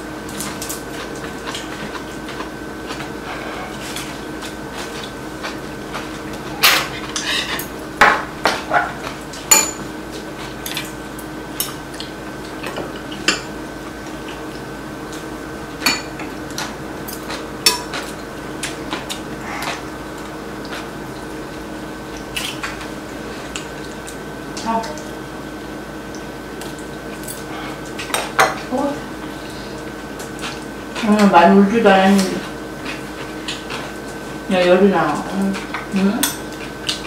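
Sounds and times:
utensils clinking on ceramic bowls: 9.5s - 9.9s.

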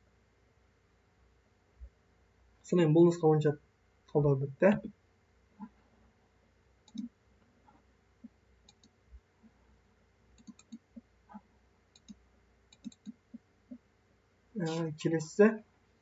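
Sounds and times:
computer mouse clicking: 6.8s - 7.1s, 8.6s - 9.0s, 10.4s - 13.3s.

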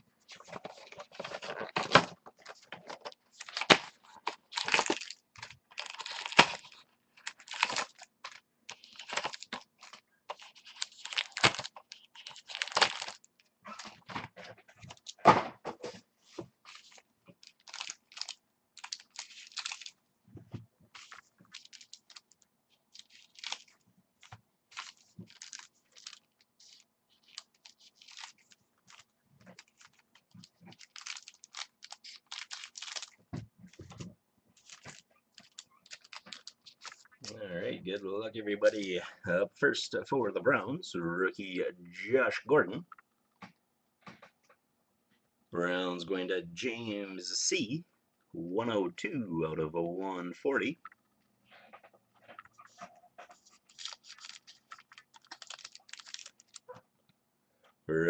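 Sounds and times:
cards being handled: 0.3s - 13.2s, 20.9s - 34.0s, 34.6s - 37.2s, 52.3s - 56.7s
packaging rustling and tearing: 0.3s - 15.2s, 16.6s - 20.0s, 20.9s - 34.0s, 34.6s - 37.3s, 52.4s - 56.8s.

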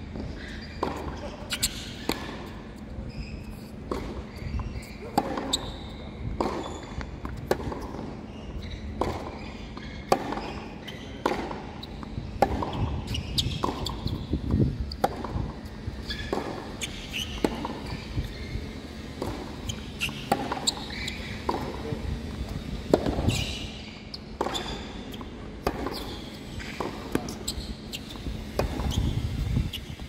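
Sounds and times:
tennis balls struck by rackets: 3.9s - 5.6s, 6.3s - 8.1s, 8.9s - 23.6s, 25.6s - 27.5s, 28.2s - 30.0s.

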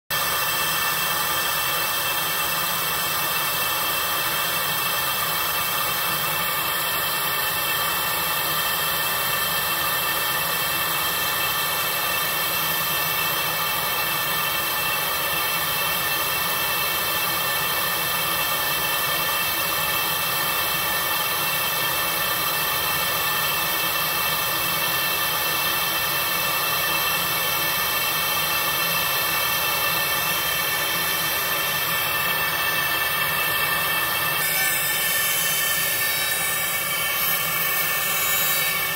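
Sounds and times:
rushing machine noise: 26.6s - 38.9s.

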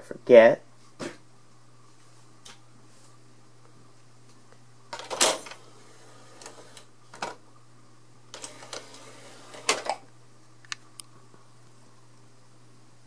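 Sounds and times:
disc tray clunks and clicks: 8.4s - 10.0s.

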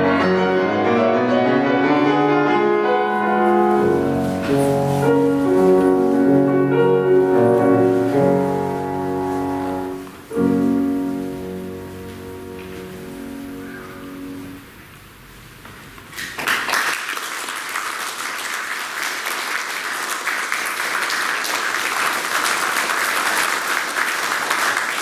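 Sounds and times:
piano chord ringing: 0.0s - 14.8s
audience applause: 16.1s - 25.0s.

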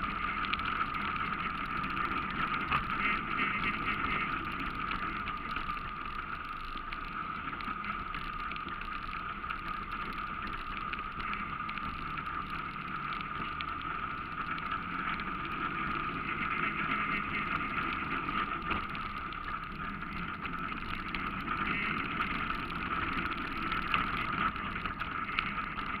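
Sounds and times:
atv engine running: 0.0s - 26.0s.

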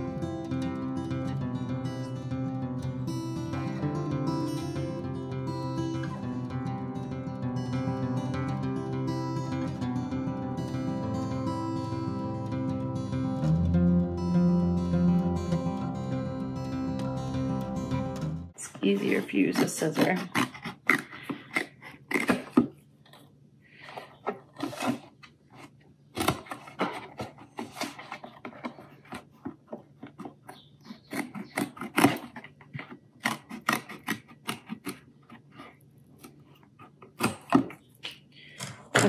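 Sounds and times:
scissors snipping paperboard: 19.0s - 22.8s, 26.2s - 37.8s.

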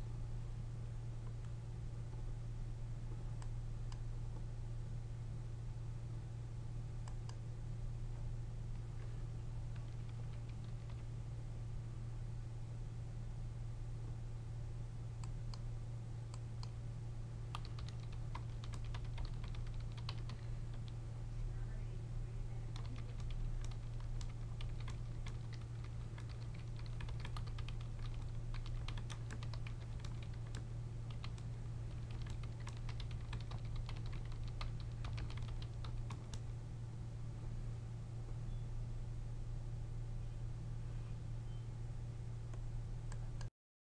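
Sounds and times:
steady low hum: 0.0s - 43.5s
typing on computer keyboard: 9.7s - 11.1s, 17.5s - 21.0s, 22.7s - 36.4s.

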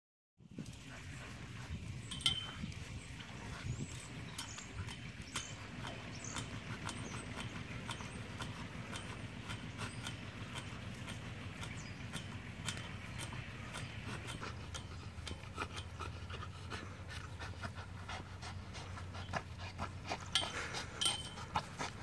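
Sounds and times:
low steady hum: 0.4s - 22.0s
dog panting: 0.6s - 22.0s
sharp clicks: 3.9s - 16.0s.

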